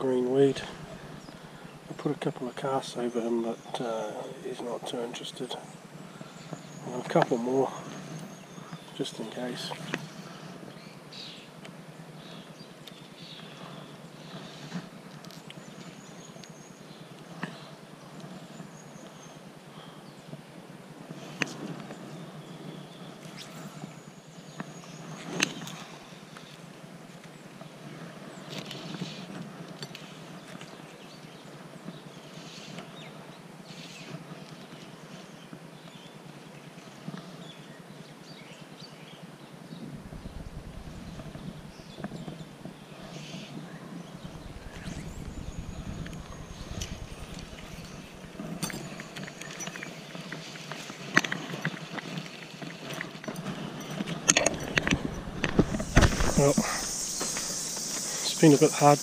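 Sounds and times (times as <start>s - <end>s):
steady low rumble: 0.0s - 2.4s, 39.8s - 42.0s, 44.2s - 49.2s
fishing line hissing rustles: 39.9s - 42.0s, 44.1s - 50.8s, 54.6s - 59.0s.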